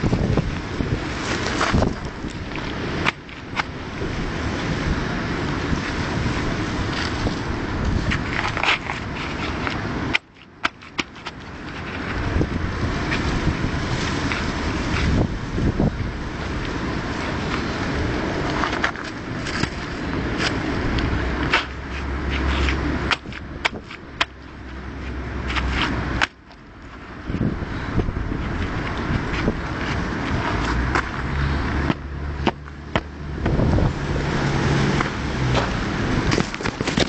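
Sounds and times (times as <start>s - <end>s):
low engine hum: 0.0s - 37.0s
scraping and knocking of hard material: 34.9s - 37.0s.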